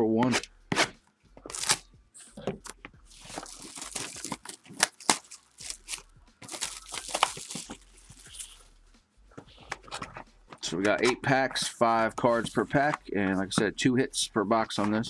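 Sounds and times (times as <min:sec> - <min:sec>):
plastic wrap crinkling and tearing: 0:01.4 - 0:01.8, 0:03.1 - 0:08.6.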